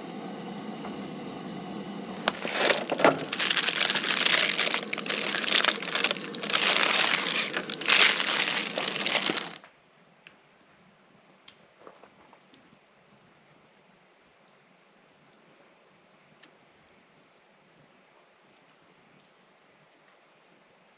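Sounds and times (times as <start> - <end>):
plastic packaging crinkling: 2.3 - 9.6.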